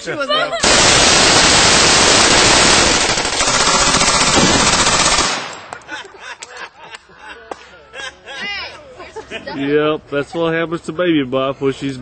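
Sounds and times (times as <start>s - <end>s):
automatic gunfire: 0.6s - 5.8s.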